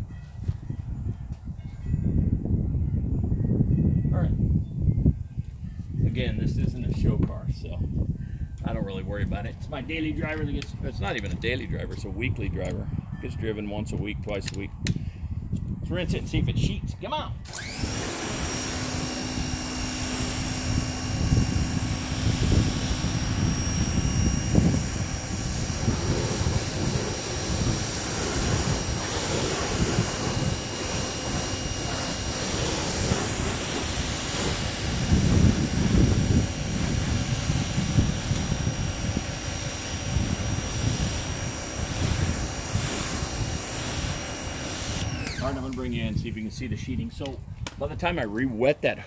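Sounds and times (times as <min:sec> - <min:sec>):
pressure washer whine: 0:17.4 - 0:46.7
water spray hissing: 0:17.5 - 0:45.9.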